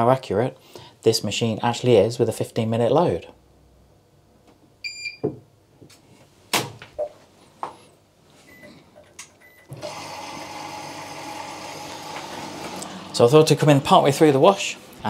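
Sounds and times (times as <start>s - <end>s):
water rushing into washing machine: 9.7s - 15.0s.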